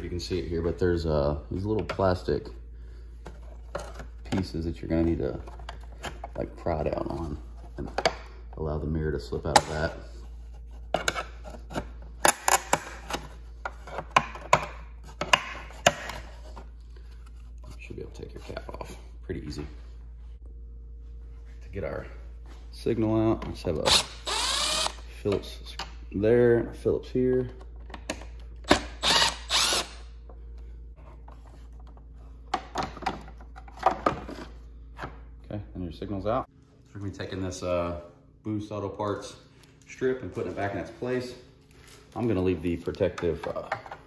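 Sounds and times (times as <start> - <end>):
cordless driver running: 23.9 - 25.0, 28.8 - 30.0.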